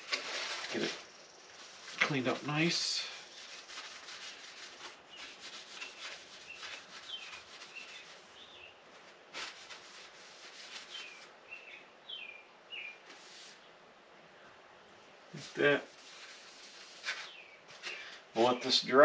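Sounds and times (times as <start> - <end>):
rag scrubbing plastic: 1.6 - 11.3, 15.4 - 17.9.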